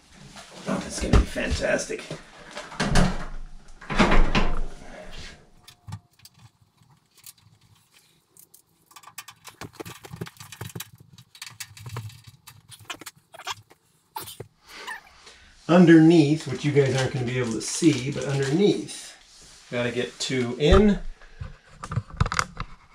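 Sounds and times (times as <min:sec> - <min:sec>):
screws and screwdriver rattling: 0:06.2 - 0:13.8.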